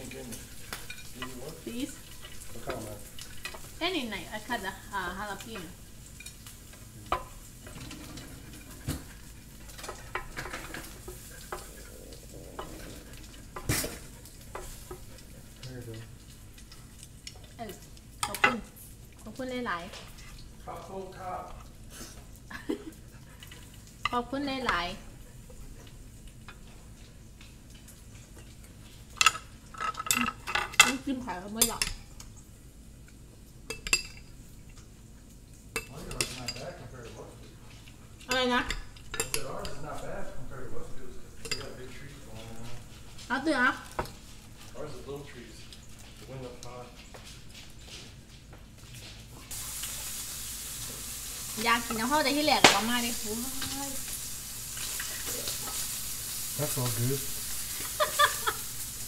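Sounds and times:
pork sizzling on grill plate: 0:00.0 - 0:59.0
chopsticks clicking on grill and plate: 0:05.4 - 0:18.6.

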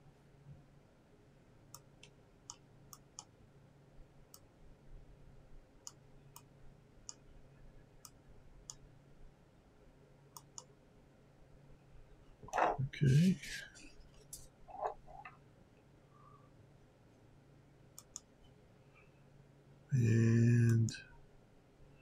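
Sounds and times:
faint low hum: 0:00.0 - 0:22.0
faint light clicks: 0:18.0 - 0:18.3.

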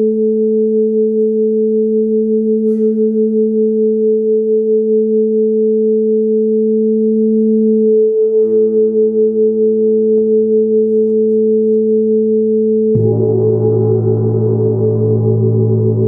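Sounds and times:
gong ringing: 0:13.0 - 0:16.0
gong strikes: 0:13.0 - 0:16.0.

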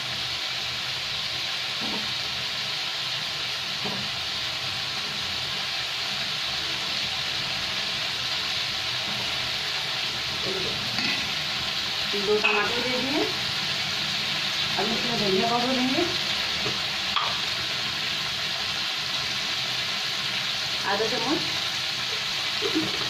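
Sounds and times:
vegetables sizzling in oil: 0:00.0 - 0:23.0.

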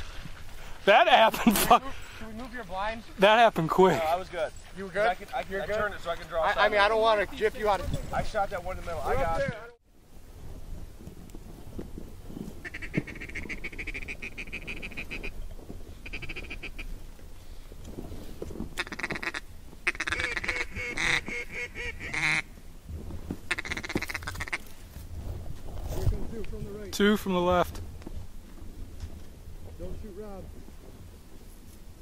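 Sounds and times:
duck call quacking: 0:12.6 - 0:15.3, 0:16.0 - 0:16.9, 0:18.8 - 0:22.5, 0:23.5 - 0:24.6.

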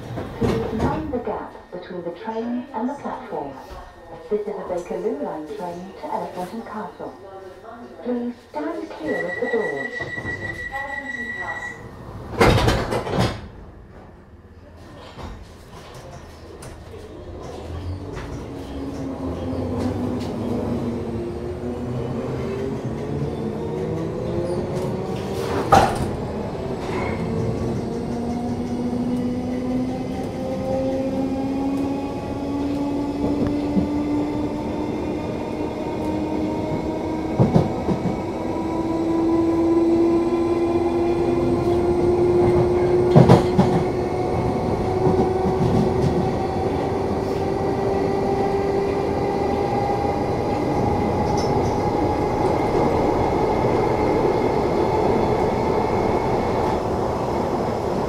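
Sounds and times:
wheels clacking on track: 0:39.7 - 0:47.6.

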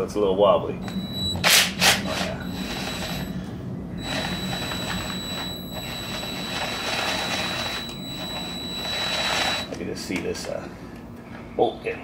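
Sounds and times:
cordless drill whining: 0:00.8 - 0:09.7.

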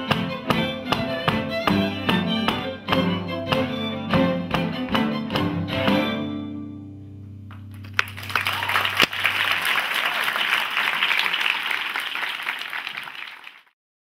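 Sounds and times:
string quartet low chord: 0:00.0 - 0:07.6
audience applauding: 0:07.6 - 0:13.8.

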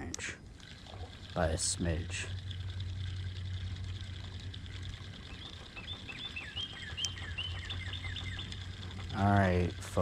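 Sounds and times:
low steady hum: 0:00.0 - 0:10.0
bird singing: 0:02.2 - 0:10.0.

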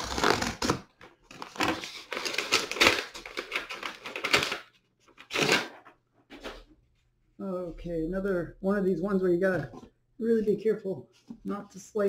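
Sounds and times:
paper packaging rustling: 0:00.0 - 0:06.7.

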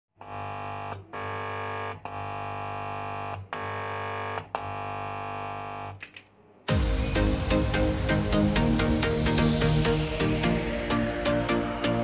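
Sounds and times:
distorted held chord: 0:06.7 - 0:12.0.

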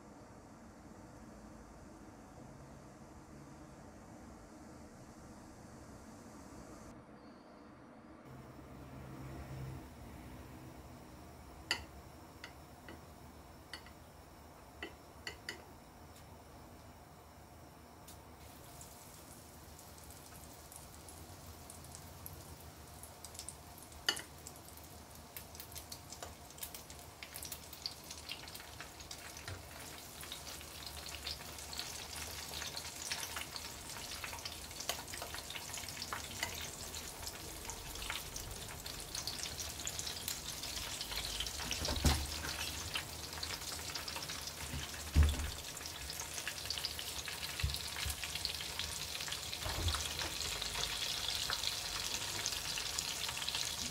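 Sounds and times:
food deep-frying in oil: 0:17.9 - 0:53.9.

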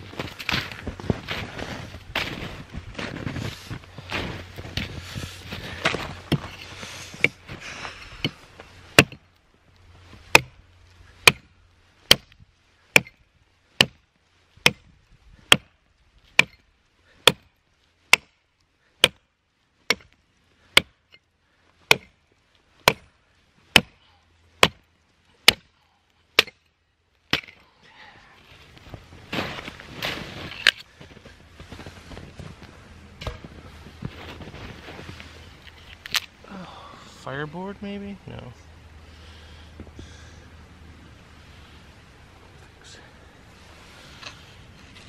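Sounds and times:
rustling: 0:00.0 - 0:36.6
axe chopping log: 0:08.9 - 0:09.2, 0:10.3 - 0:10.6, 0:11.2 - 0:11.5, 0:12.1 - 0:12.3, 0:12.9 - 0:13.2, 0:13.8 - 0:14.0, 0:14.6 - 0:14.9, 0:15.5 - 0:15.8, 0:16.4 - 0:16.6, 0:17.2 - 0:17.5, 0:18.1 - 0:18.4, 0:19.0 - 0:19.2, 0:19.9 - 0:20.1, 0:20.7 - 0:21.0, 0:21.9 - 0:22.2, 0:22.8 - 0:23.1, 0:23.7 - 0:24.0, 0:24.6 - 0:25.8, 0:26.4 - 0:26.6, 0:27.3 - 0:27.6.

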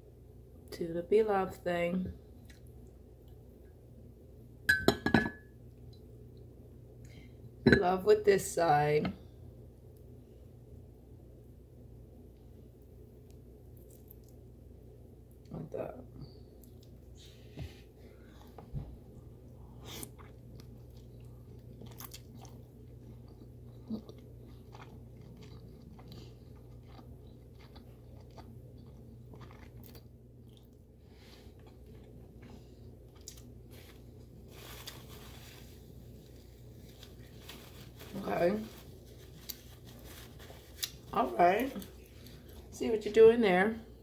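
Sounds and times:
low steady hum: 0:00.0 - 0:44.0
chewing and lip smacking: 0:13.7 - 0:14.4, 0:19.8 - 0:30.8
paper napkin rustling: 0:33.7 - 0:42.6.

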